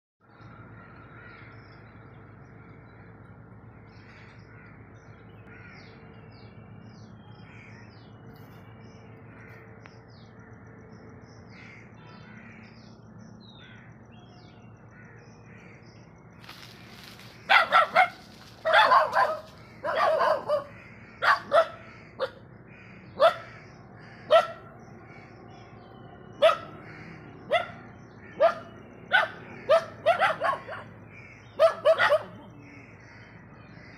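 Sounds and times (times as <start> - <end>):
small birds chirping: 11.3 - 33.9
dog barking loudly: 17.5 - 22.4, 23.2 - 23.5, 24.3 - 24.6, 26.4 - 26.8, 27.5 - 27.8, 28.4 - 32.5.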